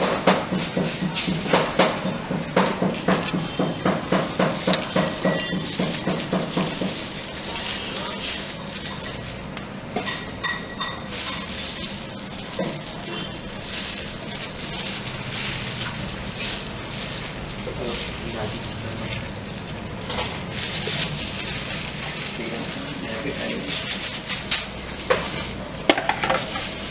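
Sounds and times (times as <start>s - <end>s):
steady kitchen hiss: 0.0s - 26.9s.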